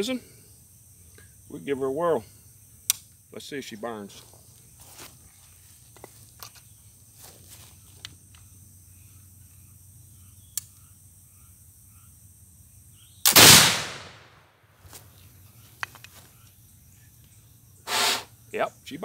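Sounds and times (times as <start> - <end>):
flintlock rifle gunshot: 13.2 - 14.5.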